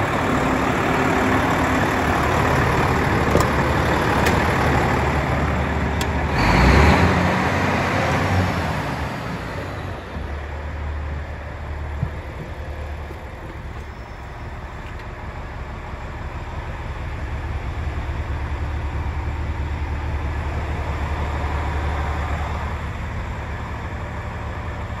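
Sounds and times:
diesel truck engine idling: 0:00.0 - 0:25.0
rustling and knocking in cab: 0:11.8 - 0:14.0.

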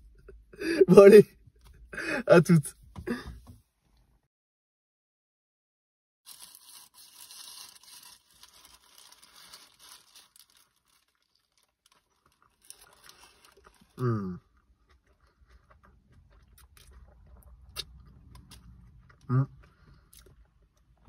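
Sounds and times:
paper wrapper crinkling: 0:06.3 - 0:14.0
biting and chewing: 0:11.6 - 0:21.0
man humming mmm: 0:14.0 - 0:14.4, 0:19.3 - 0:19.6.

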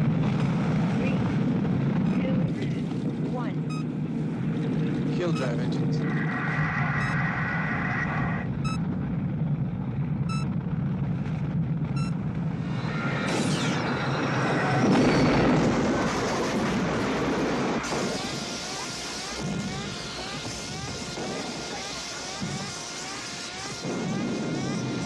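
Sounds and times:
low mechanical rumble: 0:00.0 - 0:25.0
electronic chirps: 0:03.6 - 0:03.9, 0:07.0 - 0:07.2, 0:08.6 - 0:08.8, 0:10.3 - 0:10.5, 0:11.9 - 0:12.2
short electronic beeps: 0:03.6 - 0:03.9, 0:05.3 - 0:05.6, 0:07.0 - 0:07.2, 0:08.6 - 0:08.8, 0:10.3 - 0:10.5, 0:11.9 - 0:12.2.

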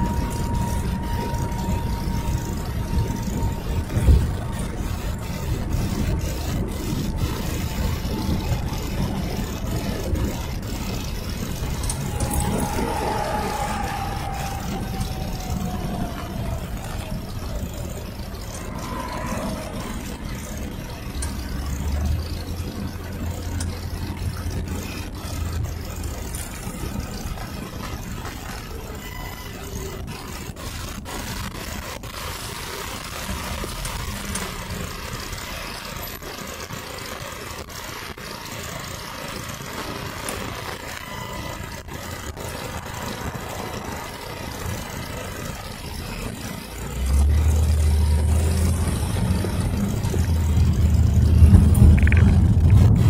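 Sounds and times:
deep low hum: 0:00.0 - 0:28.6, 0:45.6 - 0:53.0
car engine and road noise: 0:00.0 - 0:53.0.

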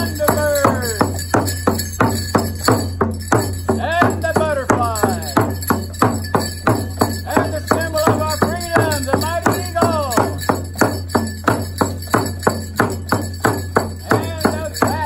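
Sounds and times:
drum beaten with a stick: 0:00.0 - 0:15.0
man singing a chant: 0:03.8 - 0:05.5, 0:07.2 - 0:10.4, 0:14.0 - 0:15.0.

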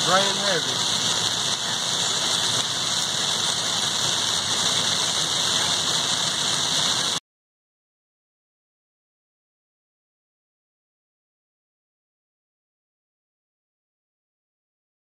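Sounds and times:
car running noise: 0:00.0 - 0:07.2
heavy rain on car roof: 0:00.0 - 0:07.2.

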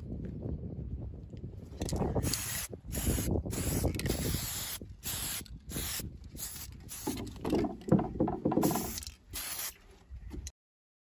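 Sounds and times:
spray can hissing: 0:02.2 - 0:07.7, 0:08.5 - 0:09.8
metal knocking and rubbing: 0:07.0 - 0:09.1.

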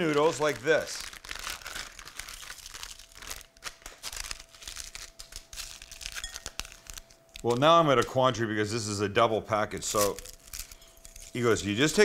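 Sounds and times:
plastic packet crinkling and tearing: 0:00.0 - 0:07.8, 0:09.7 - 0:12.0.

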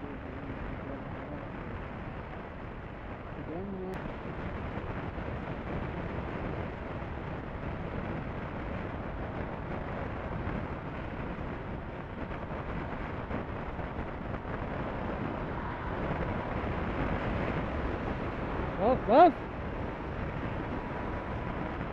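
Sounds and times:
motorcycle engine at speed: 0:00.0 - 0:21.9
wind rush on microphone: 0:00.0 - 0:21.9.

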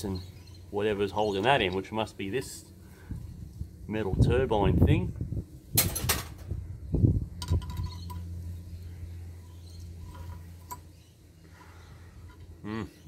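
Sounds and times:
metal knock: 0:05.8 - 0:06.4.

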